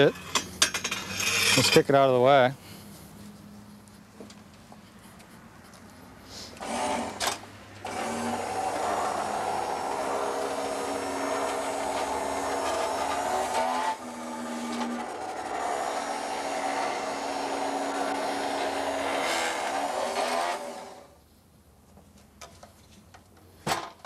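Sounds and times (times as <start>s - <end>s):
electric motor whining: 6.6s - 21.1s.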